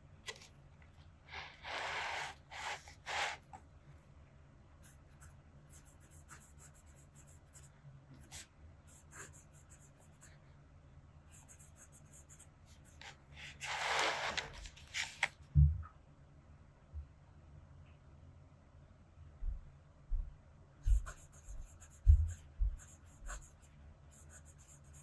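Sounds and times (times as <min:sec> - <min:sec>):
pen nib scratching on paper: 0:01.3 - 0:03.6, 0:04.8 - 0:10.4, 0:20.8 - 0:25.0.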